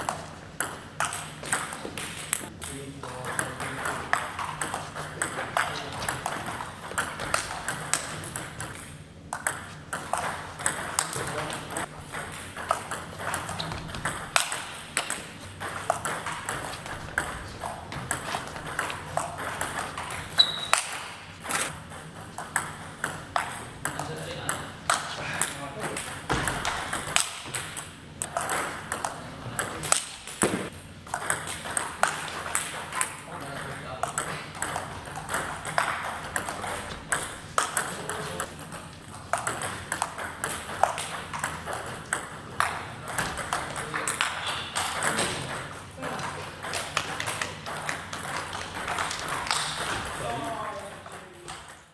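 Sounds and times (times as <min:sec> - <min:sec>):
ping pong ball clicking: 0:03.3 - 0:33.2, 0:34.0 - 0:45.6, 0:46.6 - 0:50.2
brief high squeak: 0:20.4 - 0:20.8.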